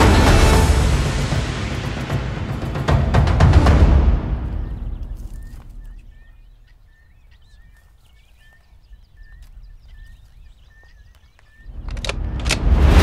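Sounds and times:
low rumble: 0:00.0 - 0:07.6
small bird chirping: 0:04.4 - 0:12.7.

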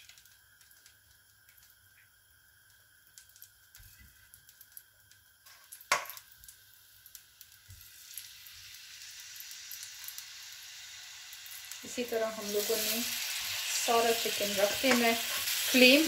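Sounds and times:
oil sizzling: 0:00.0 - 0:16.0
tongs knocking on pan: 0:14.8 - 0:15.2.

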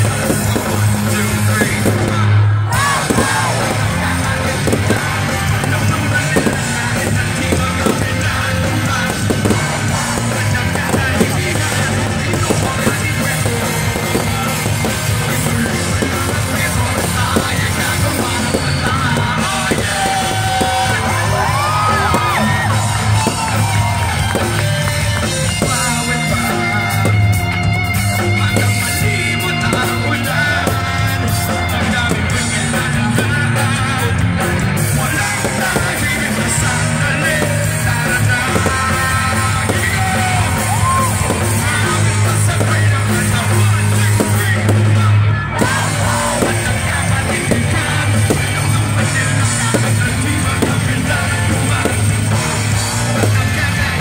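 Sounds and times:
man singing into a microphone: 0:00.0 - 0:54.0
rock band playing live: 0:00.0 - 0:54.0.

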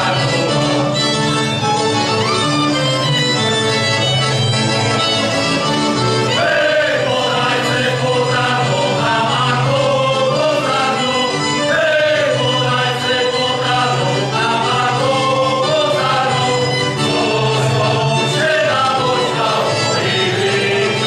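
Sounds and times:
men's choir singing: 0:00.0 - 0:01.2, 0:06.0 - 0:21.0.

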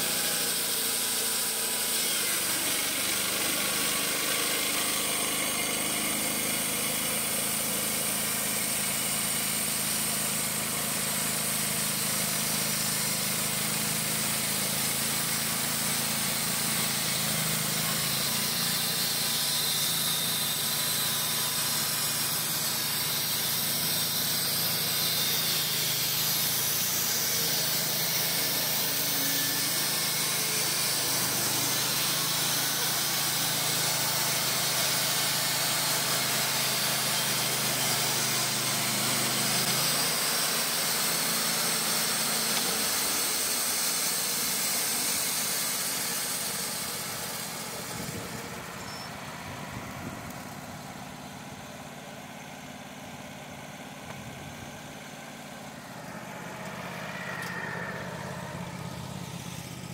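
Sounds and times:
band saw blade cutting log: 0:00.0 - 0:49.2
sawmill engine humming: 0:00.0 - 0:59.9.

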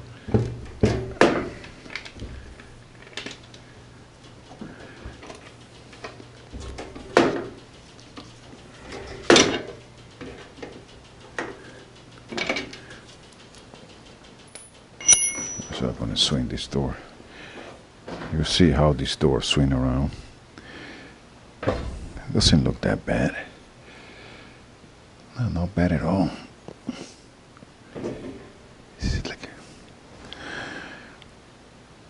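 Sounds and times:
metallic clanks of hand tools: 0:14.5 - 0:15.9.

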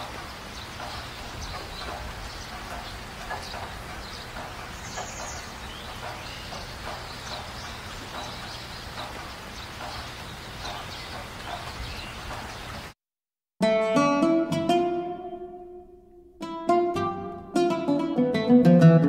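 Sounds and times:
steady background noise: 0:00.0 - 0:13.0.

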